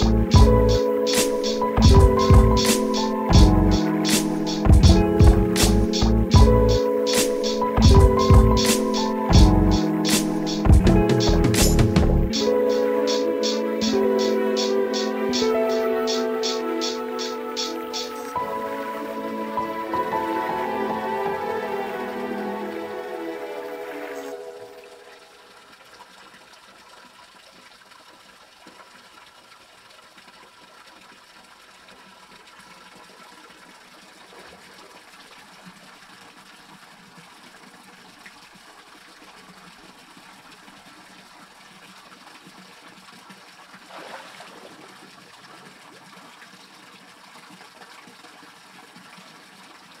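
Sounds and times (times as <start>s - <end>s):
stream trickling over rocks: 0.0s - 50.0s.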